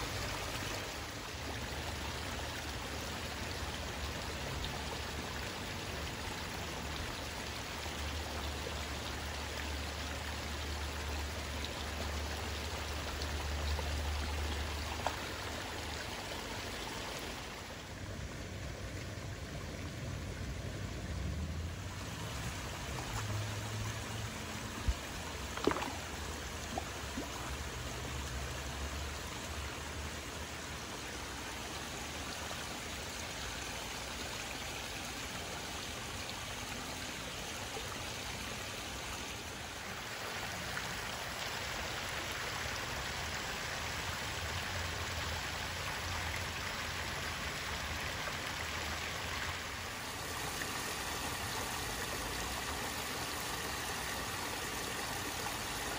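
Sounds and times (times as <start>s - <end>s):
water trickling over waterfall: 0.0s - 55.9s.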